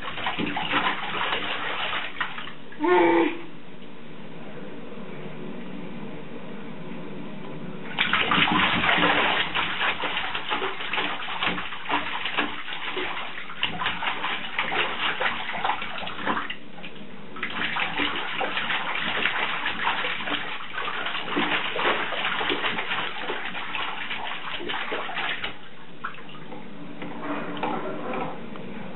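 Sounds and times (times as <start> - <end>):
baby splashing in bathwater: 0.0 - 2.9, 8.0 - 16.6, 17.4 - 26.5.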